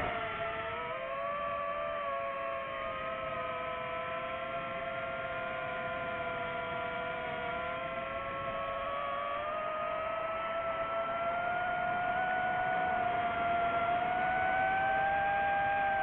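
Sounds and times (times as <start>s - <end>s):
drone propellers whining: 0.0s - 6.6s.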